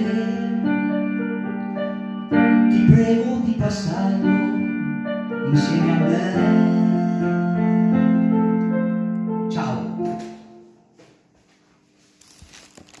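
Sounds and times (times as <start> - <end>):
electronic keyboard piano melody: 0.0 - 11.0.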